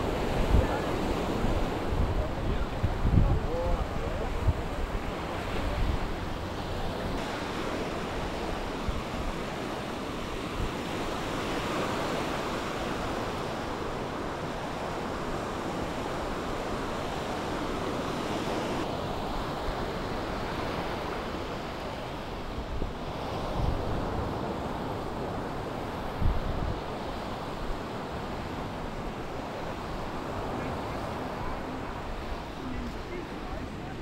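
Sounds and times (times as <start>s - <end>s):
waves washing on sandy shore: 0.0s - 34.0s.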